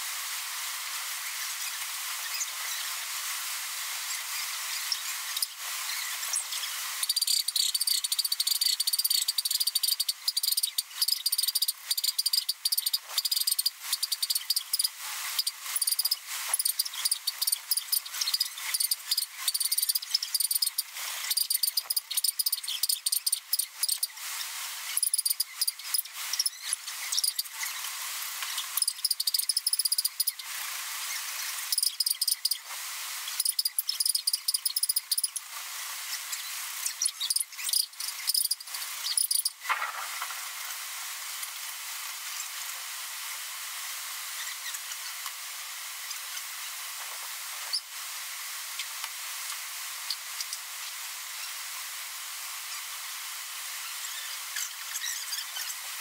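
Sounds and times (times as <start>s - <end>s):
insect chirping trills: 7.0s - 24.2s, 24.9s - 27.6s, 28.6s - 30.4s, 31.7s - 32.7s, 33.3s - 35.4s, 36.8s - 39.7s.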